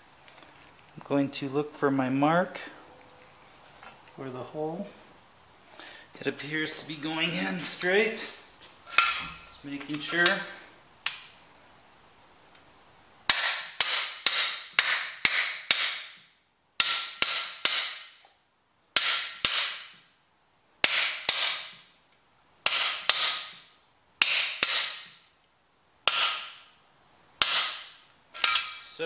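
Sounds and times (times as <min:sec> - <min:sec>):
hammer striking metal bar: 0:08.9 - 0:09.4, 0:13.3 - 0:18.2, 0:19.0 - 0:20.0, 0:20.8 - 0:21.8, 0:22.6 - 0:25.2, 0:26.1 - 0:26.7, 0:27.4 - 0:28.8.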